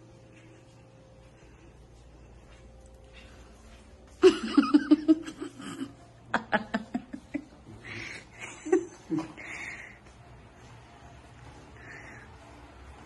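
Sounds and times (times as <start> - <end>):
person laughing: 4.2 - 7.6, 8.3 - 9.5.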